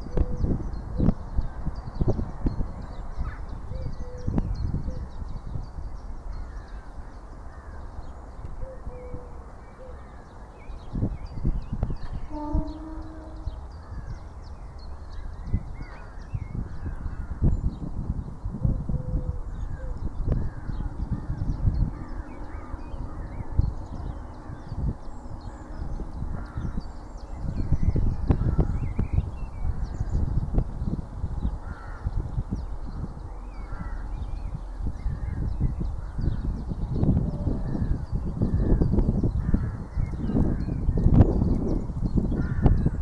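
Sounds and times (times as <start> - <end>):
wind rumble on microphone: 0.0 - 43.0
birds chirping: 0.1 - 17.9.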